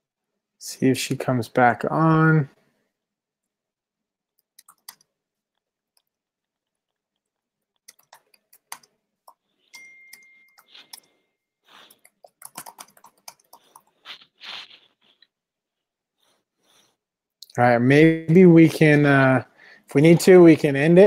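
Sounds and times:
thin steady tone: 9.6 - 12.0
short rustling: 13.6 - 15.4.

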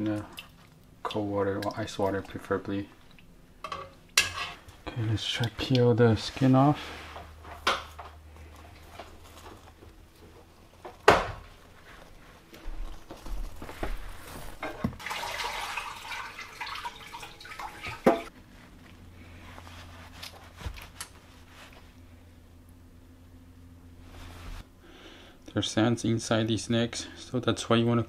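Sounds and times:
tap water running: 14.6 - 18.3.

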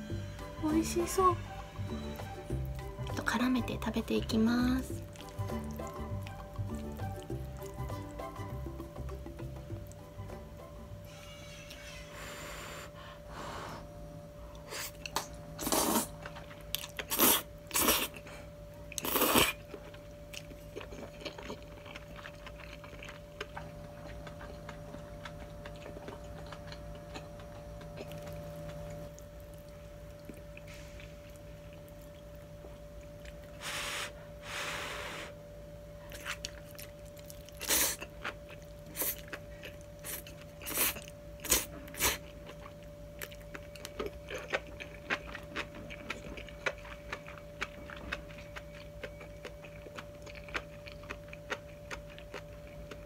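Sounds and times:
steady low hum: 0.0 - 53.0
soft chewing: 4.2 - 10.1, 14.4 - 33.7, 36.0 - 53.0
noodles slurping: 37.5 - 42.4.

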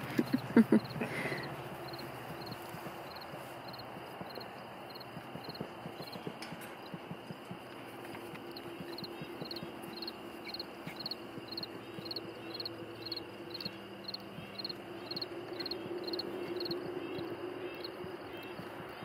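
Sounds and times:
goats cropping grass: 0.0 - 12.6
cricket chirping: 0.0 - 19.0
low steady hum: 0.0 - 19.0.

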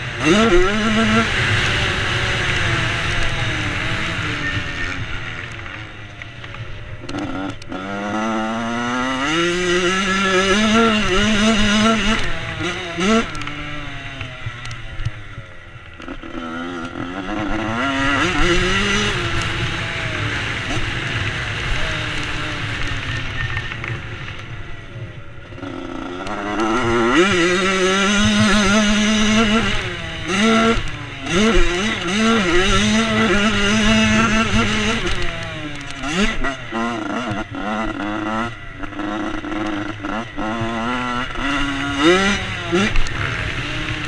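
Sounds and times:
two-stroke motorbike engine revving: 0.0 - 44.0.

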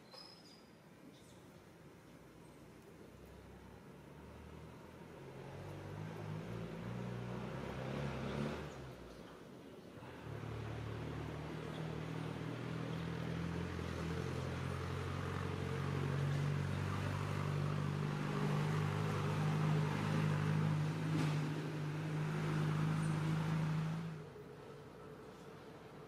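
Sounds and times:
engine running with low hum: 10.0 - 26.0.

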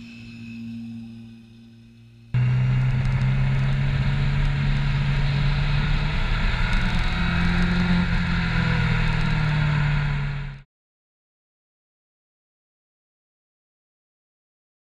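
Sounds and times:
motorcycle engine droning: 0.0 - 10.6.

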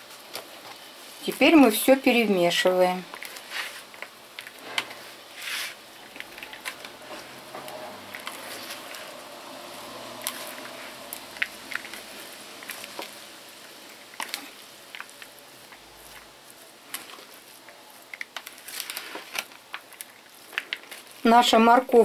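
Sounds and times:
plastic spoons scraping bowl: 3.1 - 13.2
wet squishing of grated carrot: 3.1 - 21.5.

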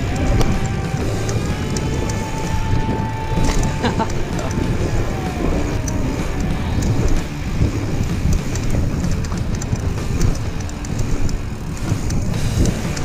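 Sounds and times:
bike clicks and rattles: 0.0 - 13.0
tyres rumbling on dirt: 0.0 - 13.0
wind buffeting microphone: 0.0 - 13.0.

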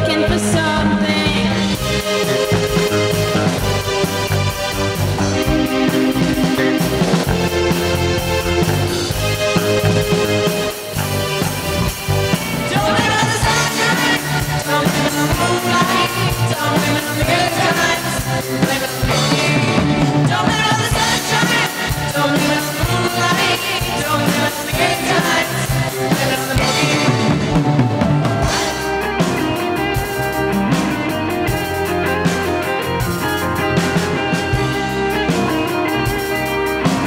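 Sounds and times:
live rock-pop band: 0.0 - 37.0
group singing: 12.6 - 29.0.

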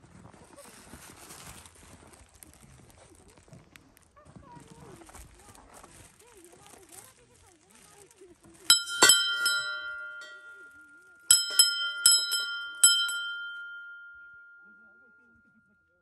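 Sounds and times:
small metal bells struck by hand: 8.7 - 16.0.

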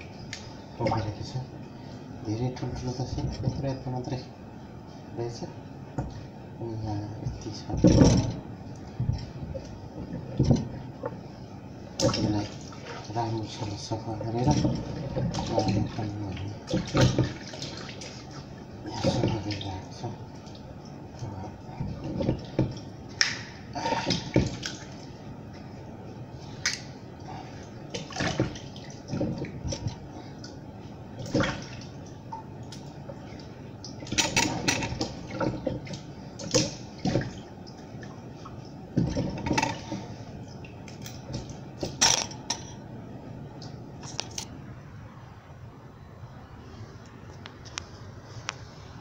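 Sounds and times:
splashes and knocks: 7.3 - 10.8, 12.0 - 13.3, 14.3 - 19.7, 21.7 - 25.0, 27.9 - 30.6, 31.2 - 32.0, 32.7 - 42.6.

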